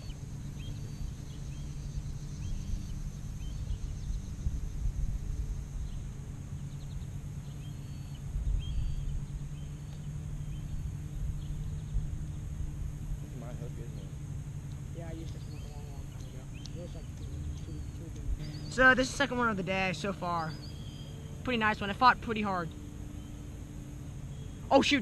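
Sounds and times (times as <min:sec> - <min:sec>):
wind rumbling on microphone: 0:00.0 - 0:13.4
small birds chirping: 0:00.0 - 0:25.0
steady high buzz: 0:00.0 - 0:25.0.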